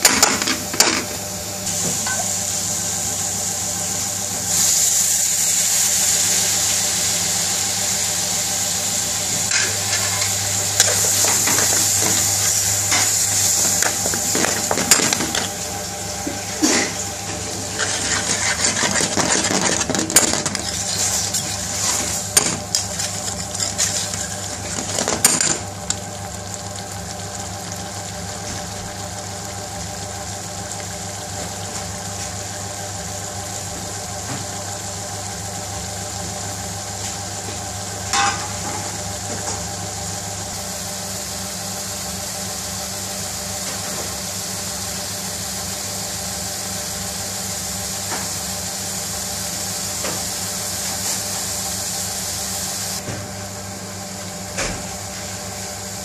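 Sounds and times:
metal spoon scraping a pan: 17.7 - 22.2.

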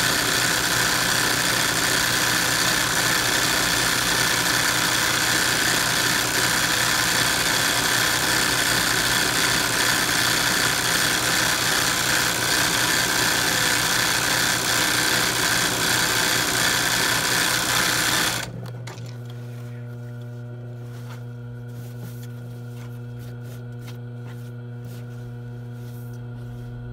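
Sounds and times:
sewing machine stitching: 0.0 - 19.1
steady low hum: 19.0 - 26.9.

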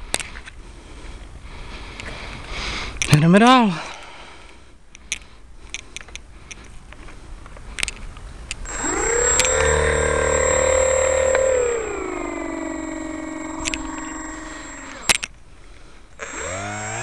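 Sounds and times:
electric motor and propeller whine: 8.6 - 15.3, 16.2 - 17.0.

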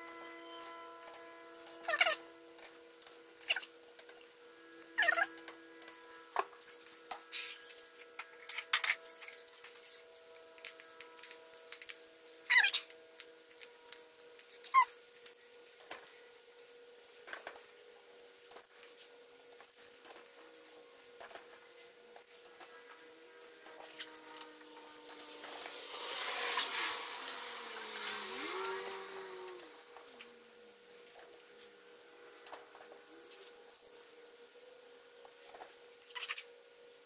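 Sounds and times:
short squeaks: 4.6 - 8.0, 14.5 - 15.0.

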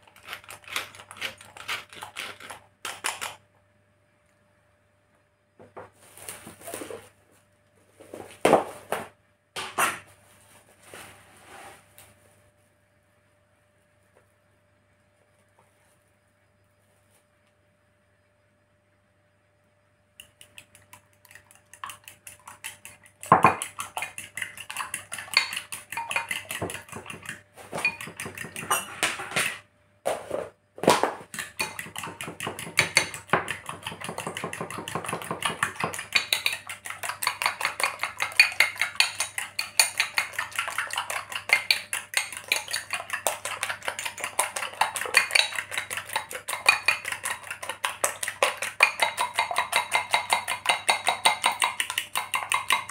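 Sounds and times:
whisk clinking in glass bowl: 21.7 - 29.6, 31.3 - 52.9.

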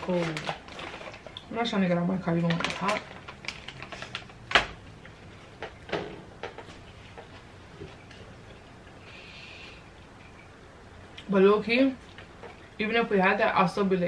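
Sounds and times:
snack bag crackling: 0.0 - 1.6, 2.2 - 5.7.

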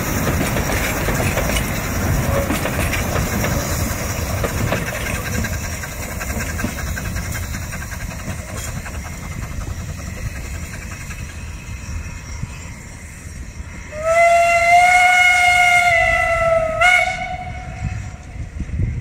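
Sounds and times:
low rumble of train running: 0.0 - 19.0
wind: 0.0 - 19.0
steam locomotive whistle: 13.8 - 18.5.

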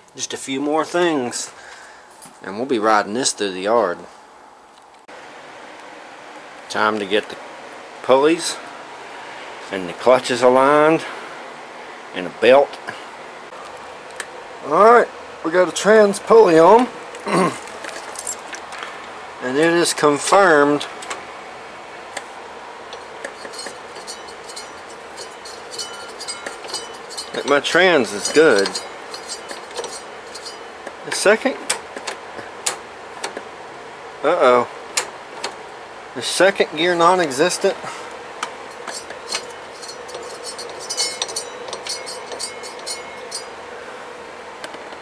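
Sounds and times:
faint steady hum: 0.0 - 45.0
metallic clicks and clinks: 23.4 - 30.7, 38.7 - 43.6.

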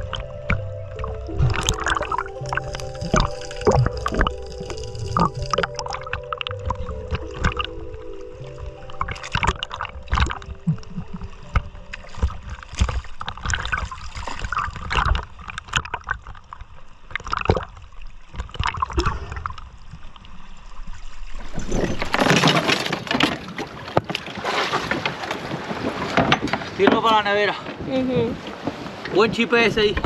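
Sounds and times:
knocks and splashes: 0.0 - 19.7, 21.4 - 30.0
water sloshing and gurgling: 0.0 - 30.0.

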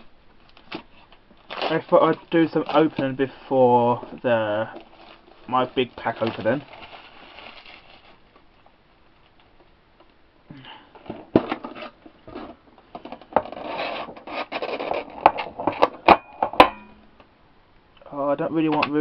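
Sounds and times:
plastic packaging being torn open: 0.5 - 3.1, 4.1 - 8.2.

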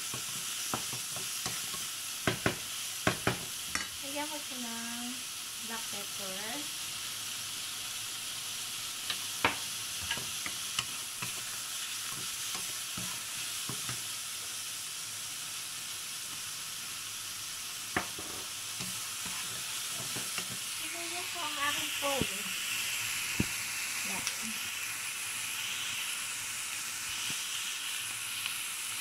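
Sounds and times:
chicken sizzling in a wok: 0.0 - 29.0
spatula knocking against pan: 2.2 - 3.9
spatula stirring: 10.0 - 14.0, 18.0 - 20.8.

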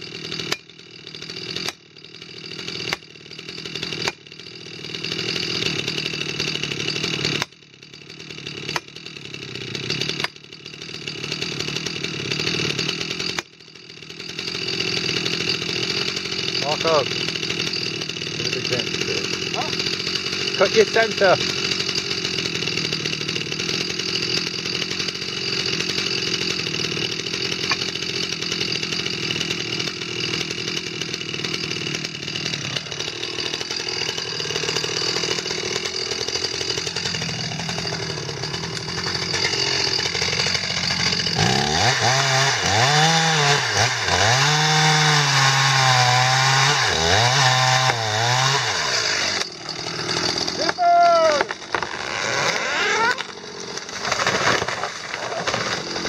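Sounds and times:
chainsaw running and revving: 0.0 - 56.0.

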